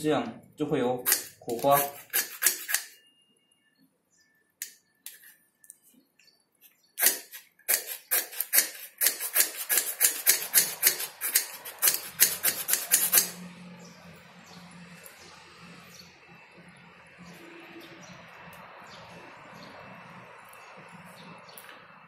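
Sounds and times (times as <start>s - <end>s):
striker scraping fire-starter rod: 1.0s - 3.0s, 7.0s - 13.4s.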